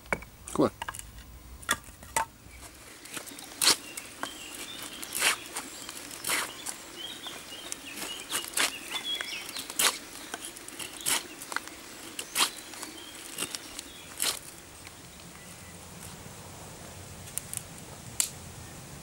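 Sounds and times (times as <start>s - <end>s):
birds chirping faintly: 0.0s - 19.0s
knife scraping wooden stick: 3.1s - 6.7s.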